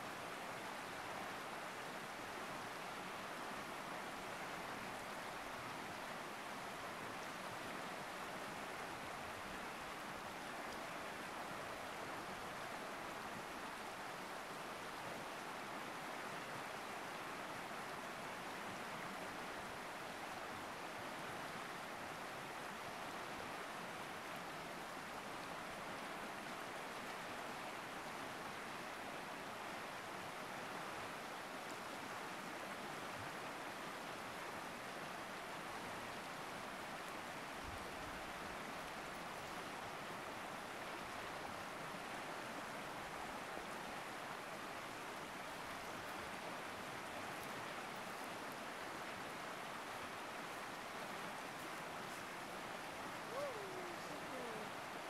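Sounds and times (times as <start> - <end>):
river rapids rushing: 34.1 - 55.0.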